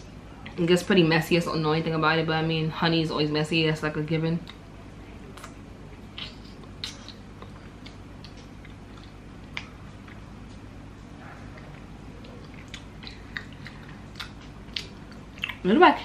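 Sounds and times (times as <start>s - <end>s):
faint steady hum: 0.0s - 16.0s
wet chewing and sucking: 5.3s - 10.6s, 11.5s - 15.6s.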